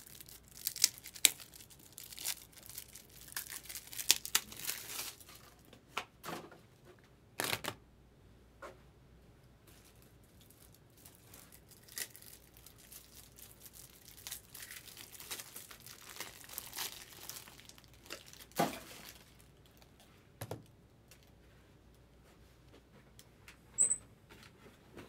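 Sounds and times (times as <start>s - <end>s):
foil wrappers crinkling and tearing: 0.0s - 5.7s, 9.7s - 20.0s.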